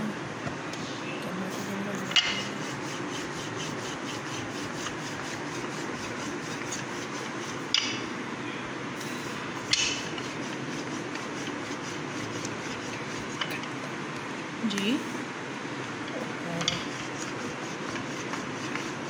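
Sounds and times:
rolling pin rubbing on dough: 0:02.0 - 0:08.1, 0:09.3 - 0:13.7, 0:16.7 - 0:19.0.

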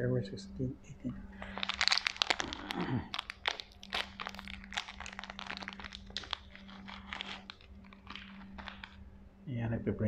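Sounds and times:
low electrical hum: 0:00.0 - 0:10.0
crackling and crunching clicks: 0:01.4 - 0:09.0.

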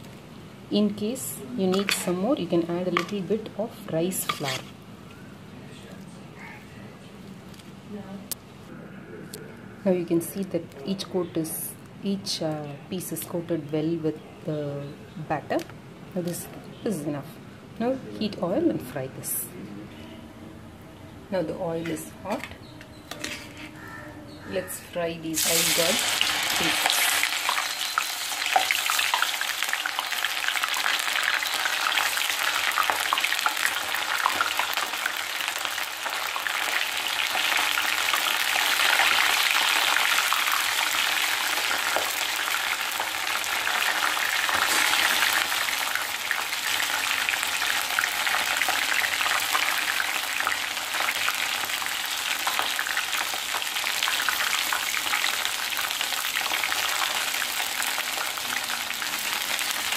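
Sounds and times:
deep-frying sizzle with crackling pops: 0:01.0 - 0:04.6, 0:25.3 - 0:59.9.

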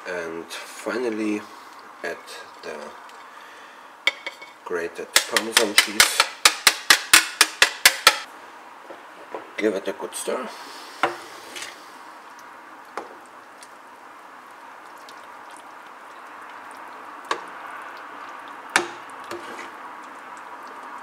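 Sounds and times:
steady hiss: 0:10.2 - 0:12.3
metal ladle stirring thick soup: 0:16.6 - 0:20.8.

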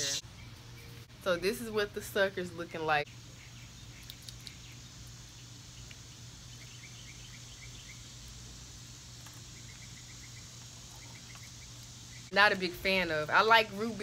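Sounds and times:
small bird chirping: 0:03.0 - 0:08.4, 0:09.4 - 0:12.3.

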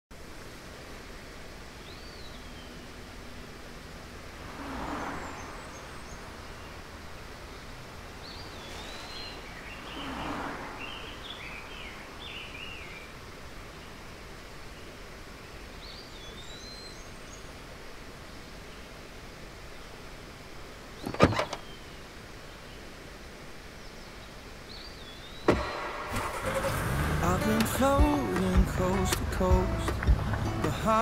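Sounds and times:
steady background hiss: 0:00.1 - 0:31.0
birds chirping: 0:01.8 - 0:19.0, 0:19.7 - 0:31.0
rushing noise: 0:02.9 - 0:13.3, 0:25.5 - 0:31.0.

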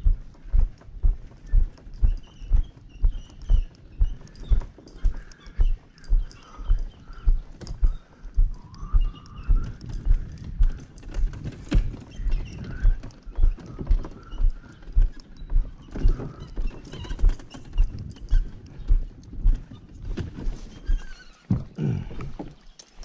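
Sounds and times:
footsteps on concrete: 0:00.0 - 0:17.4.

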